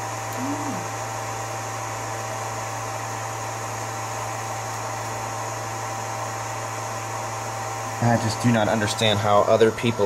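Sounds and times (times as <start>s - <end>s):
generator humming: 0.0s - 10.0s
constant high tone: 0.3s - 1.0s.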